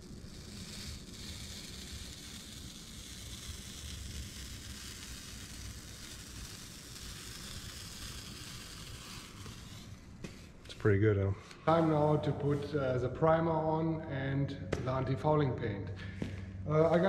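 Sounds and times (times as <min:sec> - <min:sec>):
masking tape peeling hiss: 0:00.0 - 0:13.2.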